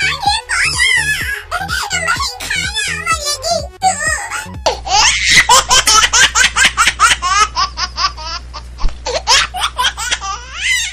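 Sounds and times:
high-pitched laughter: 3.8s - 10.9s.

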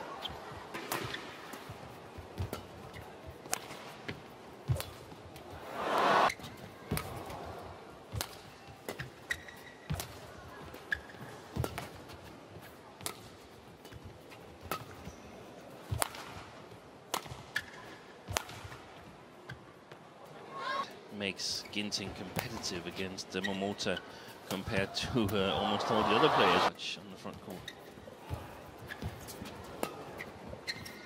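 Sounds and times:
crowd noise: 5.5s - 6.4s, 24.7s - 26.7s
shoes squeaking on court: 8.9s - 12.8s, 27.5s - 31.0s.

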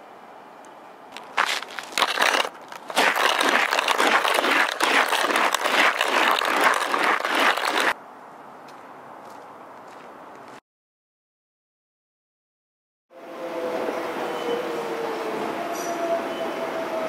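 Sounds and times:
iron scraping on gravel: 1.2s - 8.0s.

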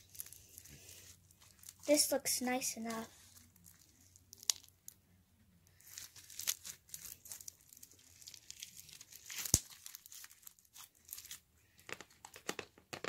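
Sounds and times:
slime crackling when squeezed: 1.5s - 4.8s, 5.8s - 11.4s.

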